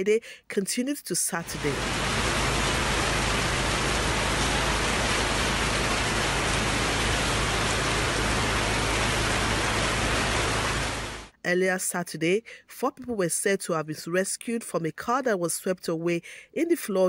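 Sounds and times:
heavy rain falling: 0:01.4 - 0:11.3.

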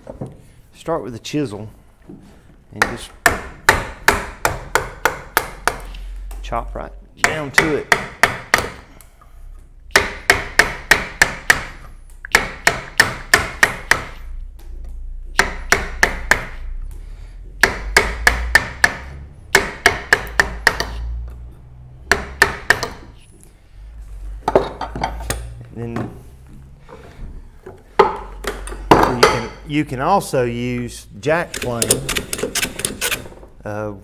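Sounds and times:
chisel knocking into wood: 0:02.8 - 0:05.9, 0:07.2 - 0:08.8, 0:09.9 - 0:14.2, 0:15.4 - 0:16.6, 0:17.6 - 0:21.0, 0:22.1 - 0:23.1.

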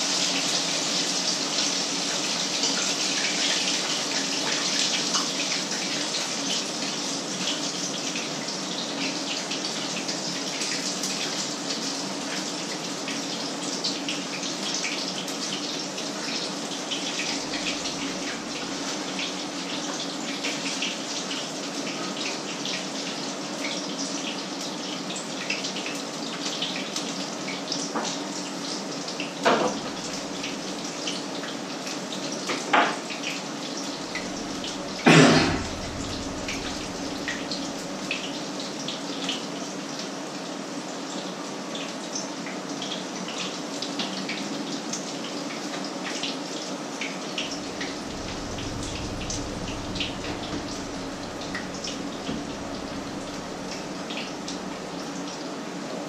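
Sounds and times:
low steady hum: 0:17.2 - 0:19.0, 0:29.7 - 0:30.8, 0:33.9 - 0:38.5, 0:47.4 - 0:55.2.

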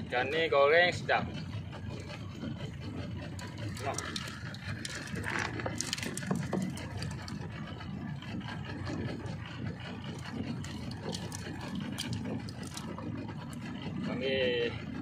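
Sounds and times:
outboard motor idling: 0:00.0 - 0:15.0
light clicks and rattles: 0:03.2 - 0:07.8, 0:10.0 - 0:13.7.

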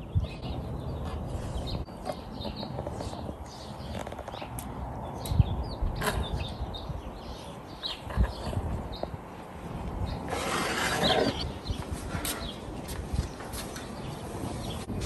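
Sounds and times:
birds chirping: 0:00.0 - 0:15.0
rasping scraping noise: 0:10.2 - 0:12.5.

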